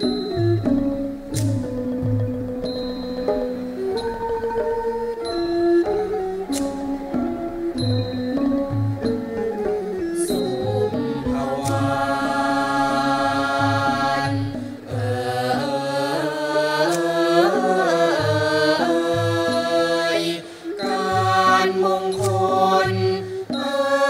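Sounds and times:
classical ensemble playing: 0:00.0 - 0:24.0
choir singing long held notes: 0:02.6 - 0:24.0.

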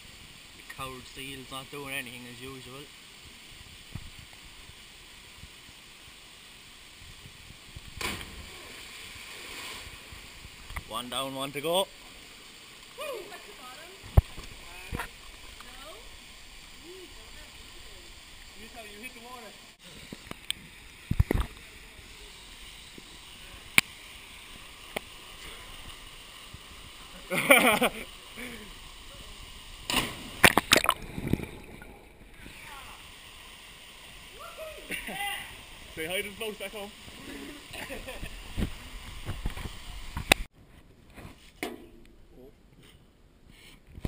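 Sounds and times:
rush of falling water: 0:00.0 - 0:40.5
person splashing into water: 0:29.9 - 0:32.0.

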